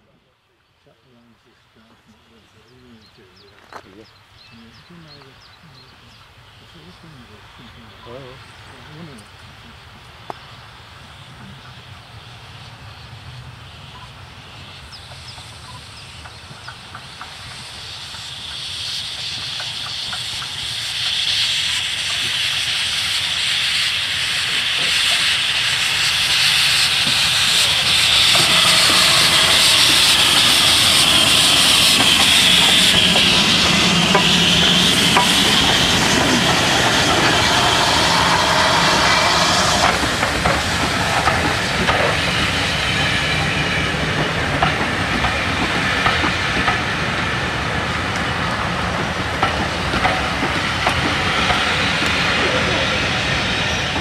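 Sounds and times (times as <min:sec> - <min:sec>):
steam hissing: 0:12.3 - 0:54.0
train wheels clicking over rail joints: 0:15.0 - 0:54.0.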